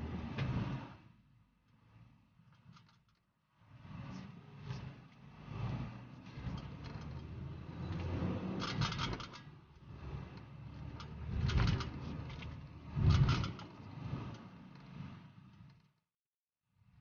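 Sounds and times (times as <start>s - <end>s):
car rumble from inside cabin: 3.8s - 15.1s.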